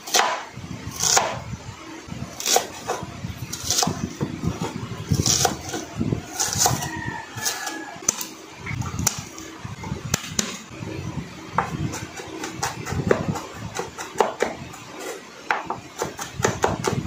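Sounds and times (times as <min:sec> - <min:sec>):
knife chopping on cutting board: 0:00.1 - 0:00.4, 0:01.0 - 0:01.4, 0:11.6 - 0:14.6.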